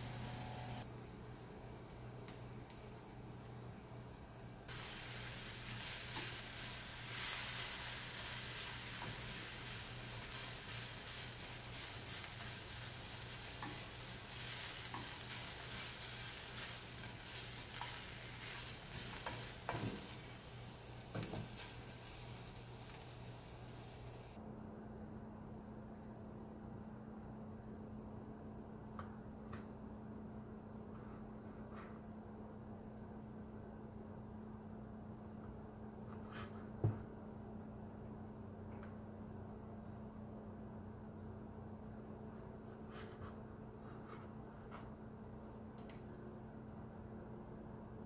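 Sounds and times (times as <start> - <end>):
onions sizzling in frying pan: 0.0 - 24.4
spatula clicking and scraping pan: 8.2 - 20.4.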